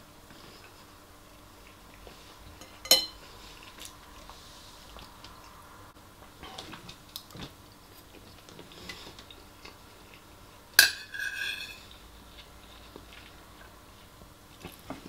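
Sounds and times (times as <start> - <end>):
spoon scraping in ceramic bowl: 10.8 - 11.9.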